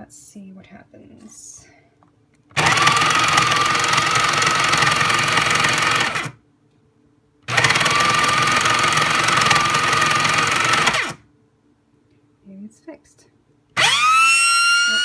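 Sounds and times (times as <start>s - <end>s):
coffee grinder motor whining: 2.5s - 6.4s, 7.5s - 11.2s, 13.8s - 15.0s.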